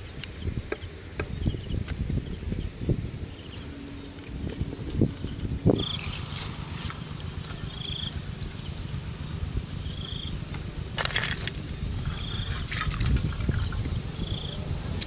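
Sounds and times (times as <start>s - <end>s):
wind rumble on microphone: 0.0s - 15.0s.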